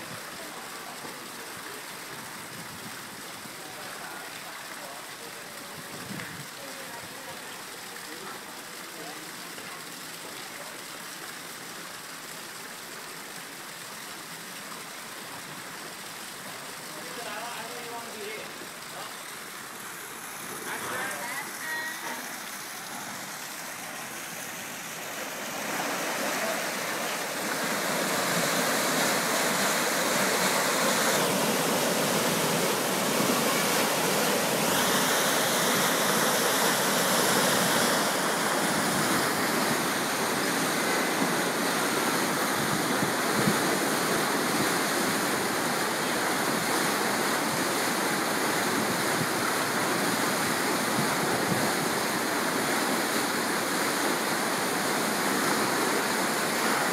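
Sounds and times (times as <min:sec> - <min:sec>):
water rushing into lock chamber: 0:14.7 - 0:56.9.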